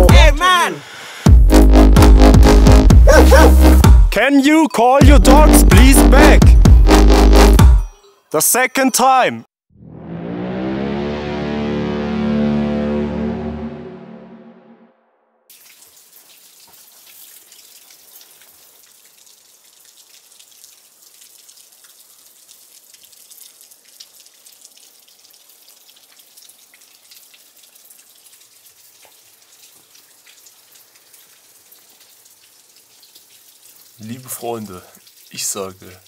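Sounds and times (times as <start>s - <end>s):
water drops falling: 15.5s - 36.0s.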